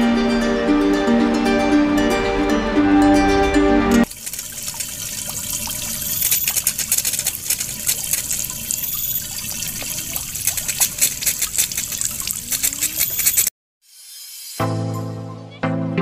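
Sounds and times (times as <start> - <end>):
fountain water splashing: 4.1 - 13.5.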